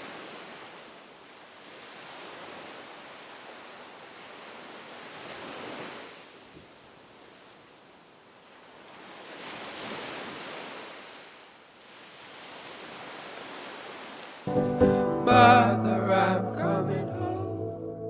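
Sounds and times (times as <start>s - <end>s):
loud music: 14.5s - 18.0s.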